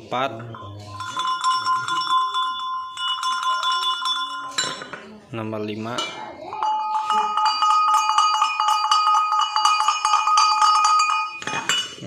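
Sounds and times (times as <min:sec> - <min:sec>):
cowbell ringing: 0:00.2 - 0:05.0, 0:05.9 - 0:12.0.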